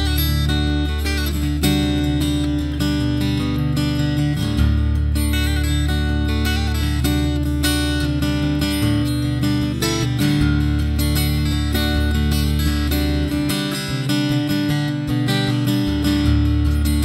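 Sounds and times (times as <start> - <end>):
strummed acoustic guitar: 0.0 - 17.0.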